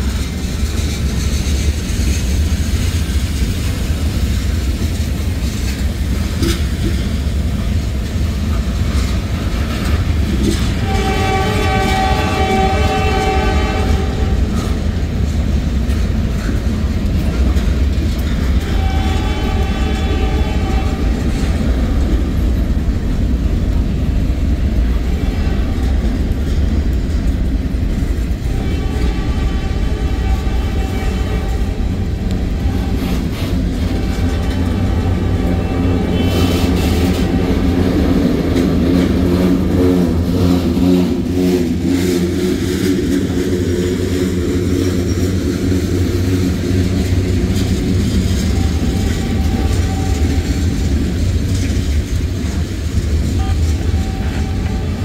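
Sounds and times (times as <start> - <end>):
freight cars rumbling past: 0.0 - 55.0
locomotive air horn blasts: 10.4 - 14.8, 18.6 - 21.6, 28.4 - 42.2, 48.3 - 51.1, 53.2 - 55.0.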